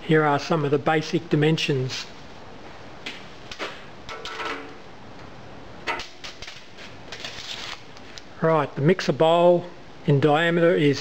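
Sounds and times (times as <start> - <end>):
steady background hiss: 0.0 - 11.0
tape measure scrapes and clicks: 6.4 - 7.8.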